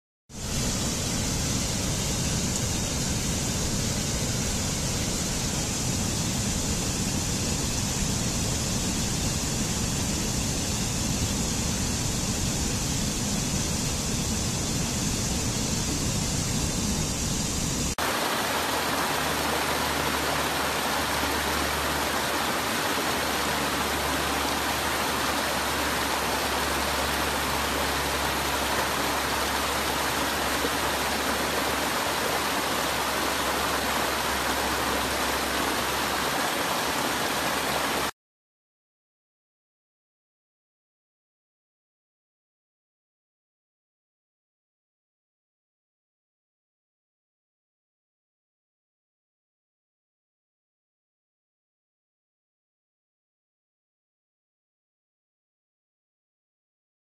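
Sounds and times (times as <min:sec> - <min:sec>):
low steady hum: 0:00.4 - 0:38.0
stream rushing over rocks: 0:18.0 - 0:38.1.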